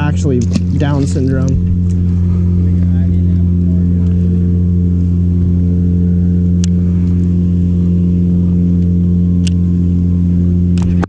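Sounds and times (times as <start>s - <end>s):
boat motor humming: 0.0s - 11.0s.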